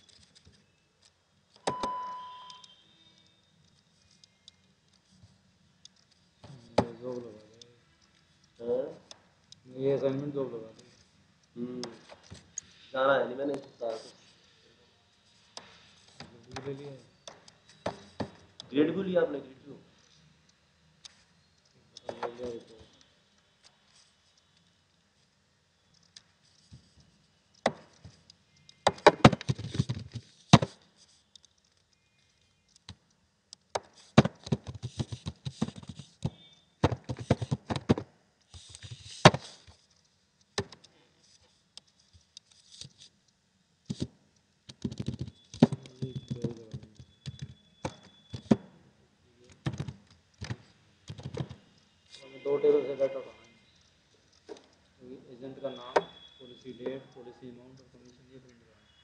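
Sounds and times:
keyboard typing clicks: 44.7s - 48.6s.

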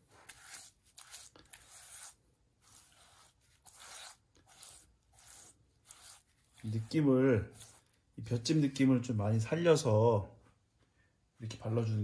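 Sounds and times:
brush scraping clay bowl: 0.0s - 8.6s.

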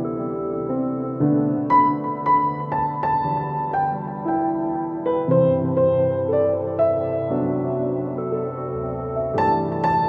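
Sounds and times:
gentle piano melody: 0.0s - 10.0s.

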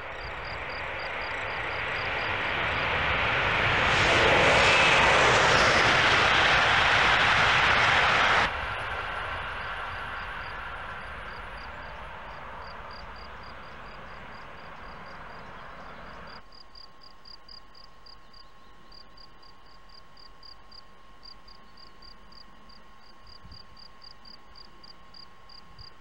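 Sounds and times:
insect chirping: 0.0s - 3.3s, 9.3s - 25.9s
high-speed train rushing: 0.0s - 16.4s.

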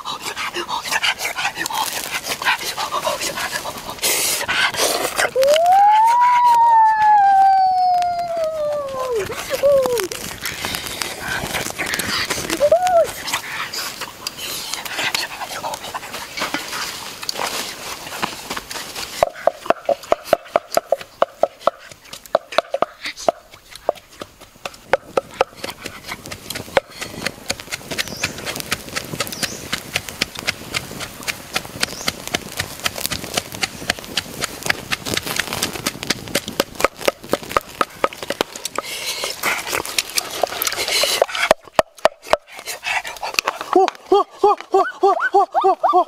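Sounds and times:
pestle pounding in a mortar: 19.2s - 38.9s.

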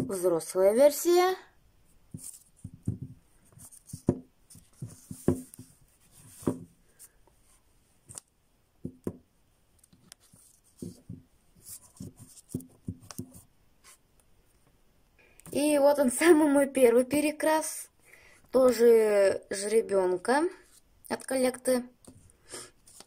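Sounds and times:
light plastic rubbing: 2.1s - 7.2s, 9.8s - 13.5s.

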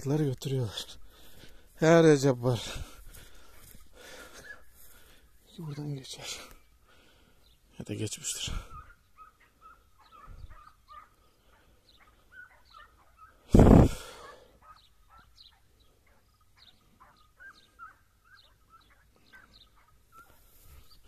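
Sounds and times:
distant hounds baying: 8.4s - 21.0s.

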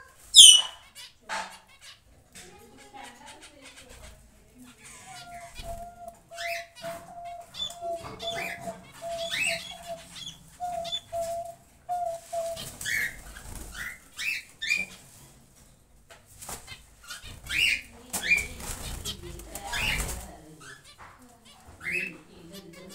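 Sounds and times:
small birds chirping: 0.0s - 22.9s
wings flapping and rustling: 2.4s - 22.1s
doves cooing: 2.6s - 14.8s, 17.2s - 20.9s.

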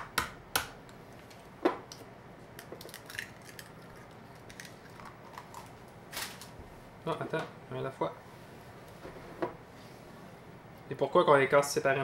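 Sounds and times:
egg shell crackling apart: 1.9s - 5.7s.

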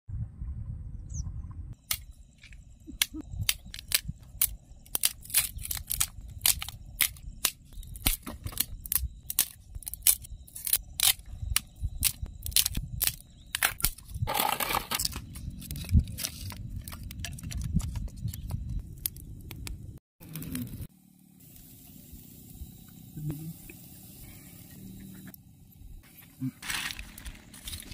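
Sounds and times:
low rumble: 0.1s - 1.8s
sticks snapping: 1.8s - 14.1s.

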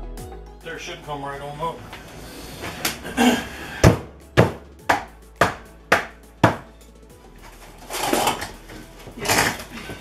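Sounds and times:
sharp blows on wooden framing: 3.8s - 6.7s.

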